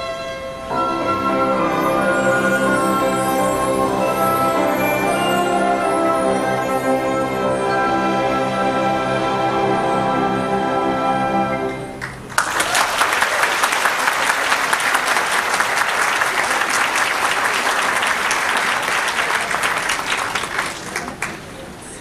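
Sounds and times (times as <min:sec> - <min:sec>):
audience applauding: 0:12.0 - 0:21.7.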